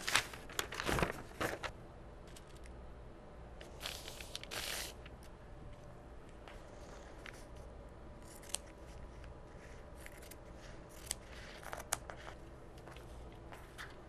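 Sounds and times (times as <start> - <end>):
fabric and paper rustling: 0.0 - 2.6, 6.5 - 14.0.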